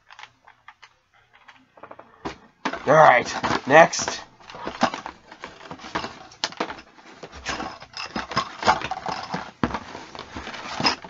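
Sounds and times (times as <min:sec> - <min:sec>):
packaging rustling and crinkling: 0:04.4 - 0:11.0.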